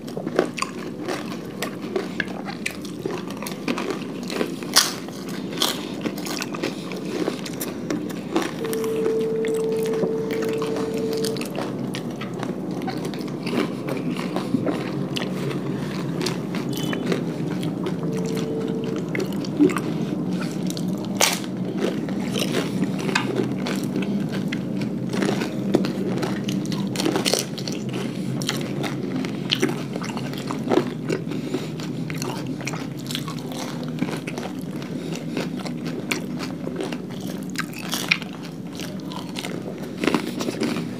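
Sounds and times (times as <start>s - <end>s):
crunching and chewing food: 0.0s - 40.9s
brief steady hum: 8.6s - 11.5s.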